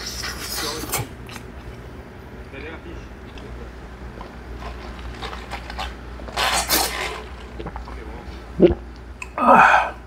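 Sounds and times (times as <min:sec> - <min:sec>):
chewing: 0:04.2 - 0:08.0
swallow: 0:08.6 - 0:10.0.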